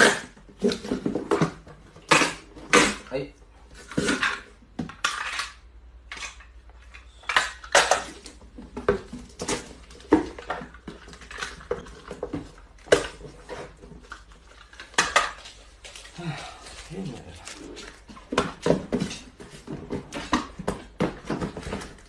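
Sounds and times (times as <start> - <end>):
cardboard boxes knocking on tiles: 0.0 - 2.9, 8.1 - 14.0, 17.8 - 22.0.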